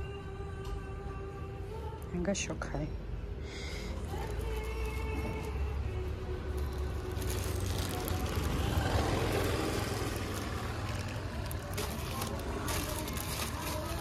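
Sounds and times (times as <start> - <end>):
plastic bag crinkling: 3.9 - 5.7, 6.4 - 14.0.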